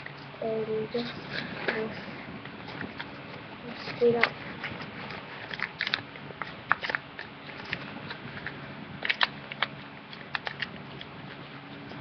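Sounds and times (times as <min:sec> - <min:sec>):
paper crinkling: 0:02.6 - 0:11.9.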